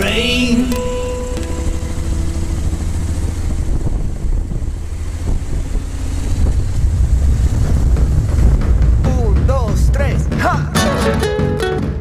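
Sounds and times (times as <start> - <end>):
background music note: 0.0 - 4.3, 8.6 - 12.0
wind rumble: 0.0 - 10.8
motorcycle engine accelerating: 0.0 - 12.0.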